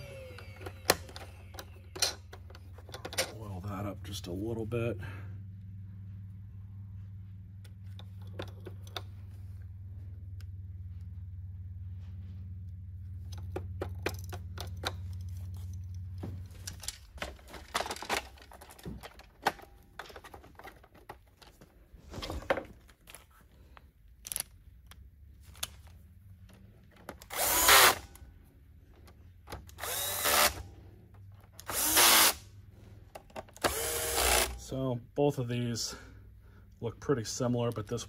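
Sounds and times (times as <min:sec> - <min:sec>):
plastic parts clicking: 0:00.0 - 0:03.4, 0:13.3 - 0:16.0, 0:16.6 - 0:21.7, 0:22.6 - 0:32.0
low hum: 0:00.0 - 0:38.0
power screwdriver running: 0:27.2 - 0:28.2, 0:29.6 - 0:30.7, 0:31.6 - 0:32.5, 0:33.6 - 0:34.6.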